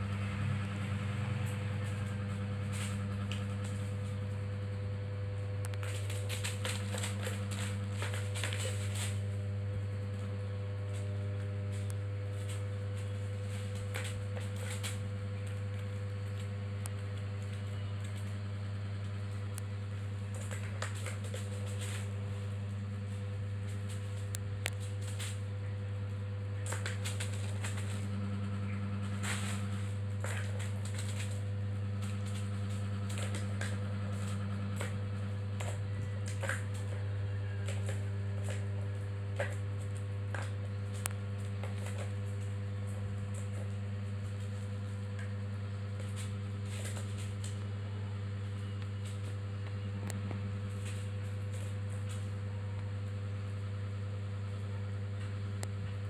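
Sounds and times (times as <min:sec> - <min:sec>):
low hum: 0:00.0 - 0:56.0
plastic sheet crinkling: 0:05.7 - 0:42.6.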